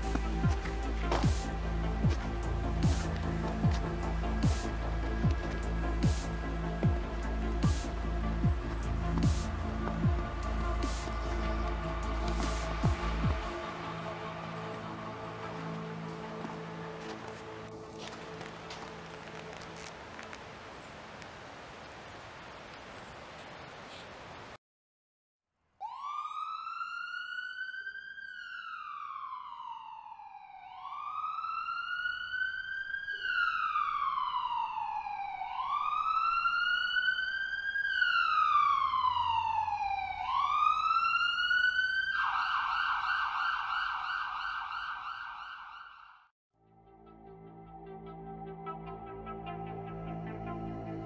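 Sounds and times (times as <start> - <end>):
police siren fast yelp: 25.8 - 46.2
electronic police siren wailing: 25.8 - 46.3.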